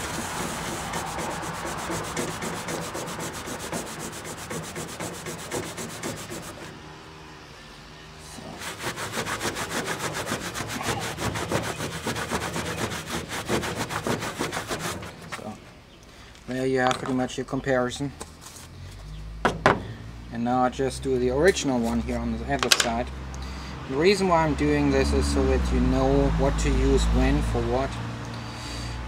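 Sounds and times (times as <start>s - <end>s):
cloth rubbing on metal plate: 0.0s - 6.7s, 8.5s - 15.6s.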